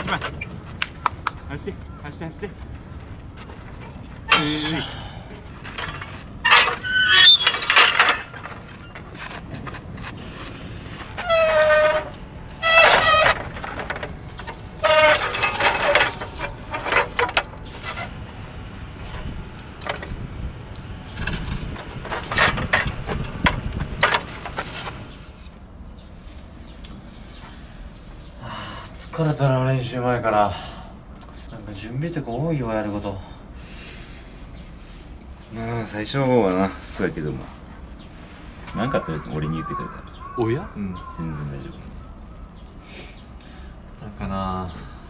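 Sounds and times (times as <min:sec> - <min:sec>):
metal frames squealing and scraping: 0:00.0 - 0:00.7, 0:03.2 - 0:25.6
metal clanks: 0:03.3 - 0:25.6.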